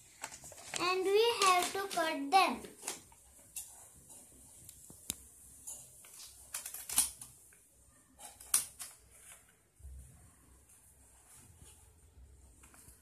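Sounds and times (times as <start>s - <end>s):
paper rustling: 0.0s - 7.4s, 8.2s - 9.8s
scissors snipping paper: 5.8s - 7.3s, 8.2s - 9.0s.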